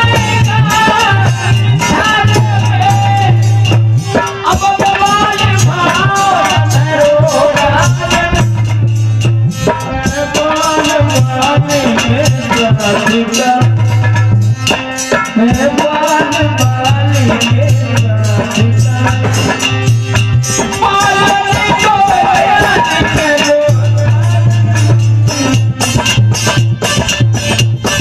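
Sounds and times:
harmonium melody: 0:00.0 - 0:28.0
low held notes: 0:05.6 - 0:12.3.

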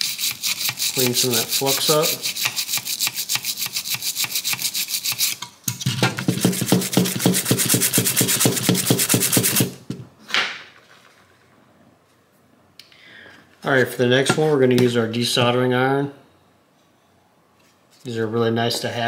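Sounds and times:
toothbrush scrubbing circuit board: 0:00.0 - 0:05.4, 0:06.5 - 0:09.6.

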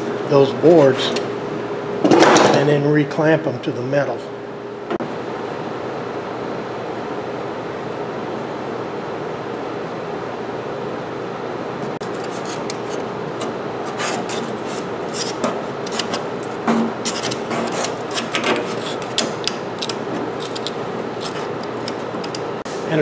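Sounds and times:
steady background hum: 0:00.0 - 0:23.0
scraping and rubbing: 0:12.0 - 0:22.5.

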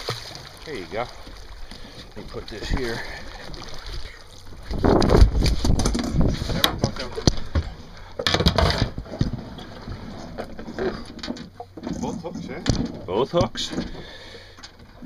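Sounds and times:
knocks and thumps on boat deck: 0:04.6 - 0:15.0.

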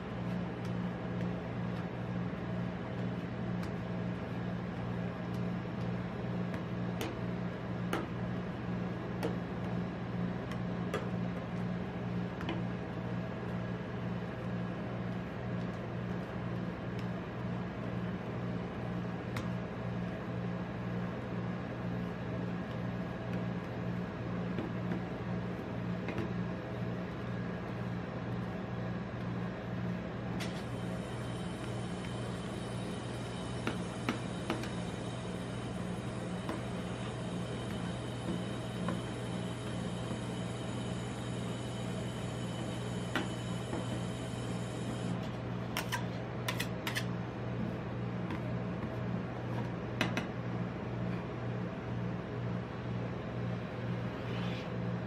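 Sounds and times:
ice cream machine humming: 0:22.2 - 0:50.8.

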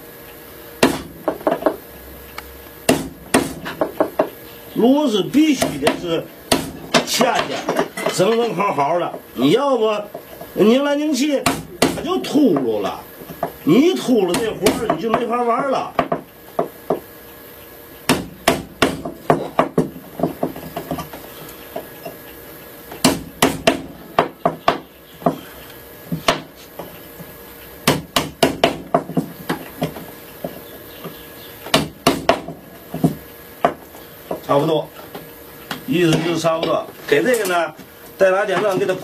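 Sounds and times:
hammer tapping on wood: 0:00.8 - 0:01.8, 0:02.9 - 0:04.3, 0:14.3 - 0:15.3, 0:15.9 - 0:17.1, 0:27.9 - 0:30.6, 0:31.7 - 0:34.5.

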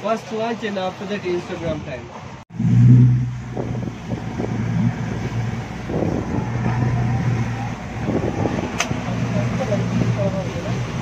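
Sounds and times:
wind: 0:00.0 - 0:11.0
motorboat engine humming: 0:02.2 - 0:11.0
water rushing past hull: 0:02.2 - 0:11.0.

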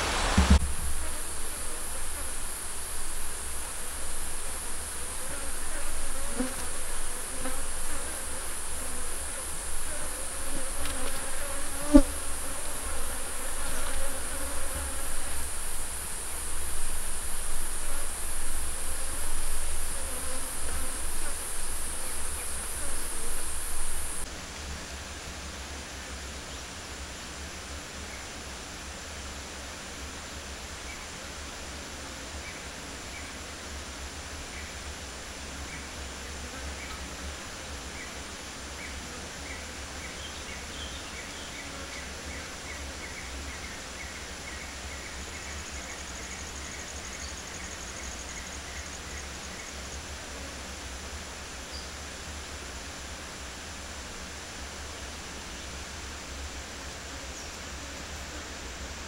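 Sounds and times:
faint ambience: 0:00.0 - 0:24.3
honeybees buzzing: 0:00.0 - 0:24.3
high-pitched insect drone: 0:00.1 - 0:24.3.

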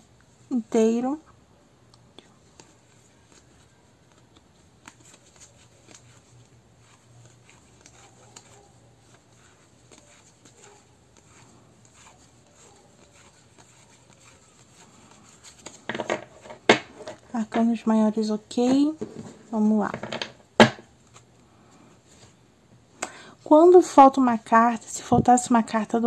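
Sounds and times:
cards being handled: 0:02.4 - 0:17.3, 0:18.7 - 0:21.4.

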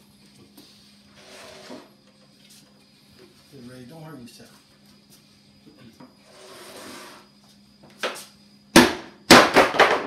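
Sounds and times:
wooden cabinet being struck: 0:08.8 - 0:10.0.

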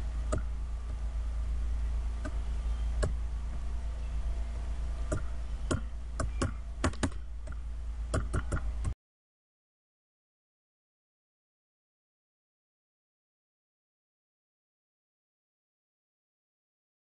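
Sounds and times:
low electrical hum: 0:00.0 - 0:09.0.

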